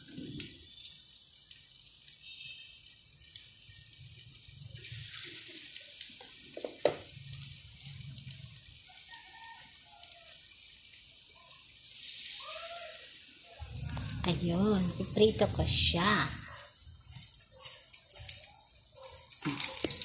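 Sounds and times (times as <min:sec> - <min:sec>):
dough sizzling in oil: 0:00.0 - 0:20.0
oil crackles: 0:11.9 - 0:20.0.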